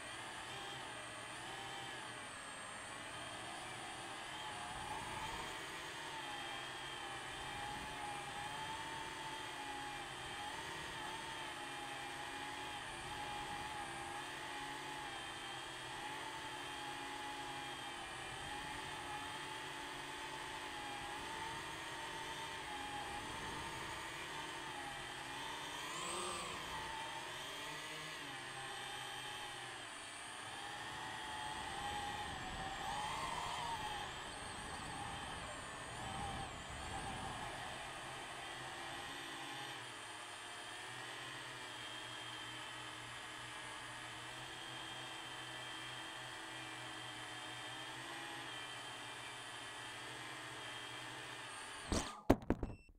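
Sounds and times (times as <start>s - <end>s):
drone propellers whining: 21.2s - 39.3s.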